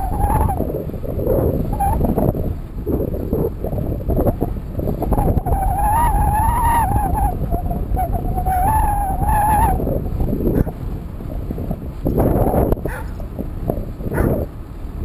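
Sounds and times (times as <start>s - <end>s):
high wavering whines: 0.0s - 10.8s
wind rushing over microphone: 0.0s - 15.0s.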